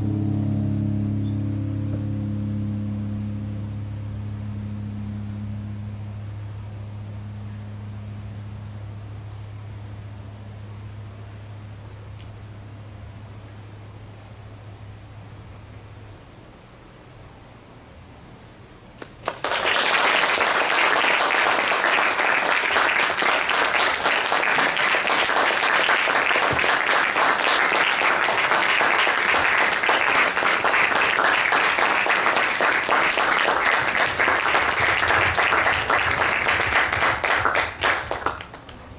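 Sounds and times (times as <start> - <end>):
audience applauding: 19.0 - 38.8.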